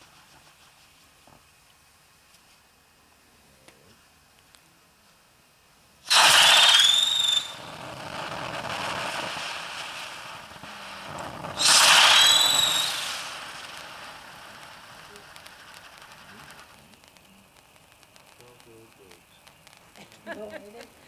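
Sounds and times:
firework fountain bursts: 0:06.0 - 0:21.0
firework whistle: 0:06.1 - 0:20.4
hiss of sparks: 0:06.1 - 0:21.0.

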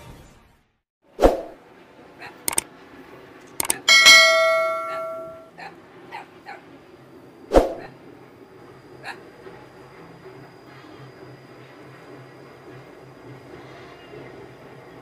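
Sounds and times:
mouse clicks: 0:03.6 - 0:03.9
bright bell ding: 0:03.6 - 0:05.5.

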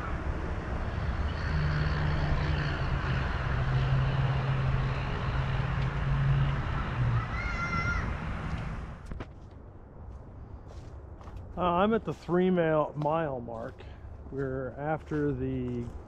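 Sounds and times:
large vehicle engine drone passing: 0:00.0 - 0:09.1.

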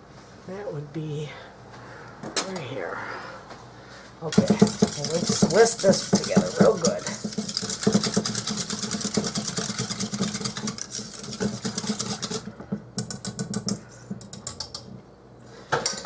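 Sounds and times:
whisk clicking in metal bowl: 0:04.3 - 0:14.9.

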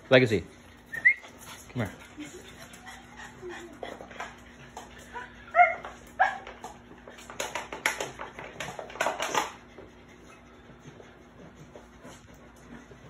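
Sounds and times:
dog yipping: 0:05.5 - 0:06.6.

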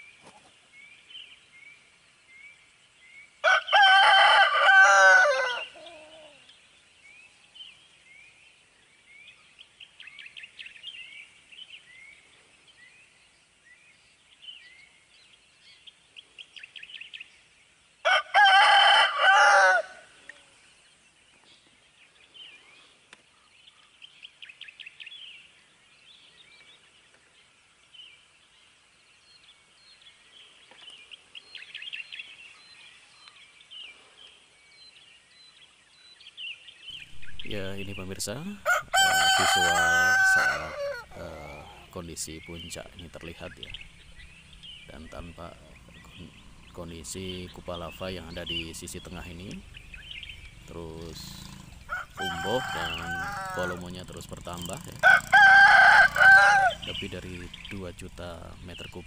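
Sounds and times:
small birds chirping: 0:00.0 - 0:18.0, 0:20.1 - 0:59.0
rooster crowing: 0:03.4 - 0:06.4, 0:18.0 - 0:20.1, 0:37.0 - 0:42.0, 0:51.2 - 0:54.1, 0:54.9 - 0:57.2.

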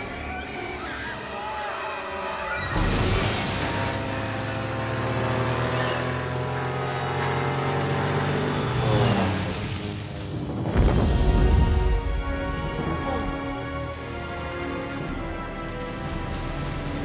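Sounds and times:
propeller aircraft engine drone: 0:03.7 - 0:10.8.

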